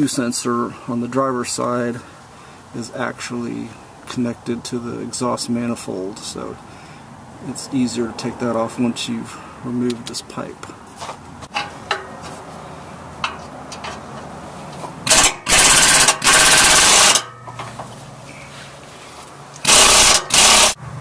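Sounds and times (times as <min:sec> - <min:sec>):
light metal clicks and knocks: 0:11.4 - 0:12.4, 0:13.2 - 0:15.0
air impact wrench hammering: 0:15.0 - 0:17.7, 0:19.6 - 0:20.8.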